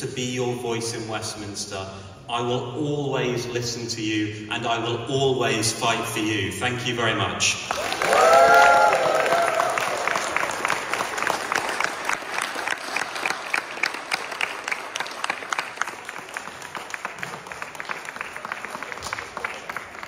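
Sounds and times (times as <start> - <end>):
audience applauding: 7.7 - 20.0.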